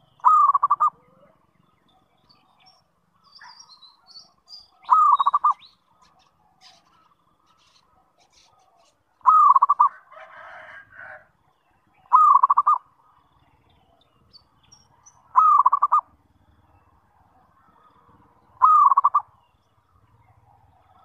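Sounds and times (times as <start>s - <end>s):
dove cooing: 0.0s - 1.5s, 4.8s - 7.0s, 7.6s - 11.3s, 12.0s - 12.8s, 15.2s - 16.2s, 17.2s - 19.4s.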